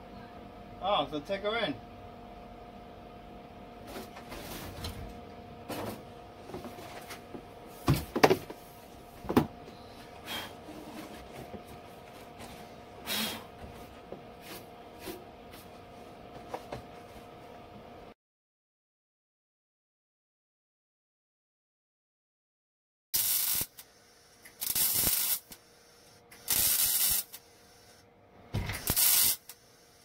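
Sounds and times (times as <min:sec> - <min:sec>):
steady hum: 0:23.2 - 0:30.0.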